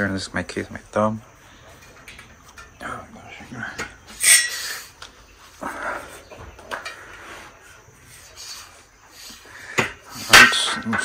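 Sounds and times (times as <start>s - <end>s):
steel bed frame parts handled: 3.7s - 5.1s, 9.8s - 11.0s.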